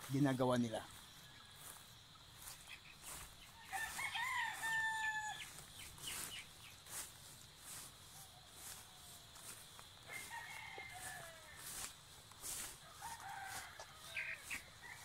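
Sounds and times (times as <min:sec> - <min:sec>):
rooster crowing: 0:03.1 - 0:05.7, 0:08.2 - 0:15.0.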